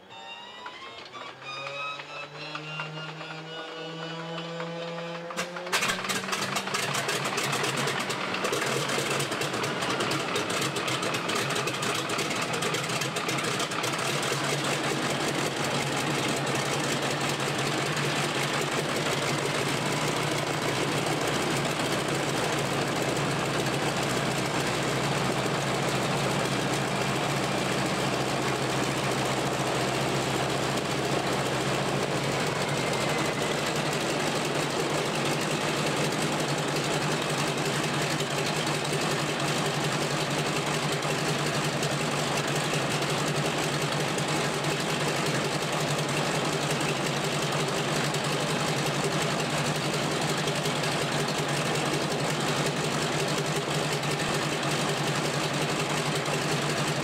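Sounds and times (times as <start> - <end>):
starter motor whine: 0.1 - 38.3
radial engine idling: 5.8 - 57.0.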